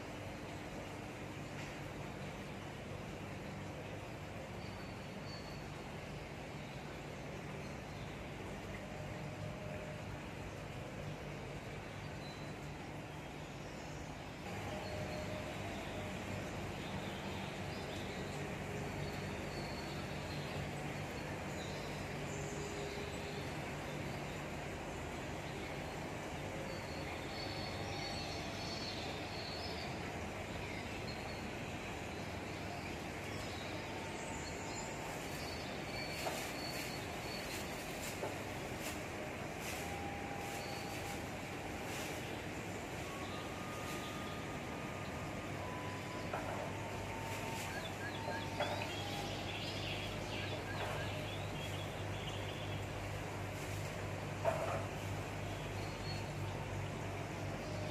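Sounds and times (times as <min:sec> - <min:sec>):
steady background noise: 0:00.0 - 0:57.9
bird chirping: 0:43.0 - 0:53.1.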